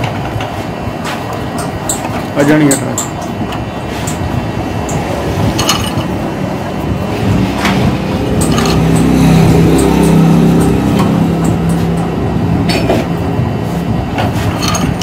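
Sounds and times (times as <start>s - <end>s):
machine hum: 0.0s - 15.0s
workshop machine noise: 0.0s - 15.0s
metal clinks and scraping: 4.9s - 6.2s, 8.2s - 12.2s, 14.2s - 15.0s.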